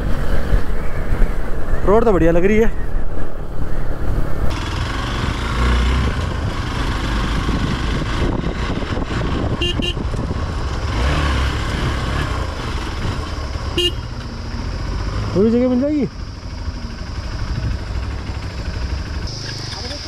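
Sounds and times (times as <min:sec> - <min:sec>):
road and wind noise: 0:00.0 - 0:20.0
motorcycle engine running: 0:03.7 - 0:20.0
motorcycle horn toots: 0:09.5 - 0:10.1, 0:13.8 - 0:14.2.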